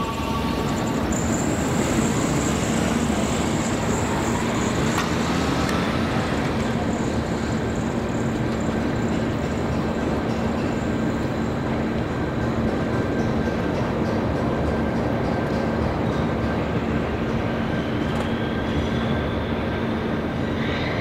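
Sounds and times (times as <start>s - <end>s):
diesel locomotive engine running: 0.0s - 20.5s
train wheels rolling on rails: 0.0s - 21.0s.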